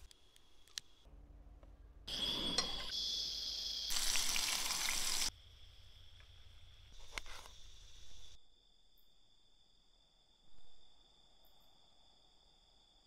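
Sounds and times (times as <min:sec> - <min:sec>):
insect trill: 0:02.1 - 0:13.0
water pouring and splashing: 0:03.9 - 0:05.3.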